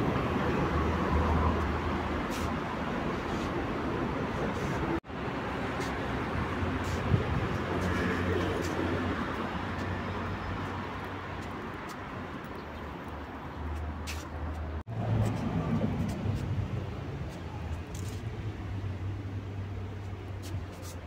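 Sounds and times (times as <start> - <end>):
car engines humming: 0.0 - 21.0.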